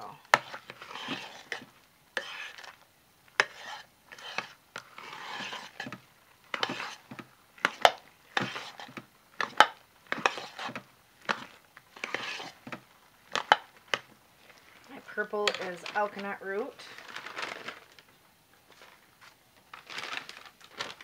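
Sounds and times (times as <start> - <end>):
spoon scraping soap paste: 0.2 - 16.2.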